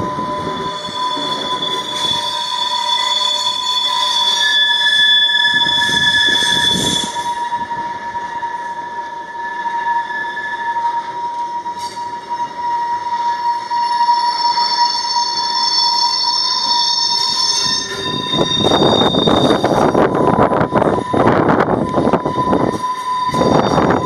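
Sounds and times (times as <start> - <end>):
train wheels squealing: 0.0 - 24.0.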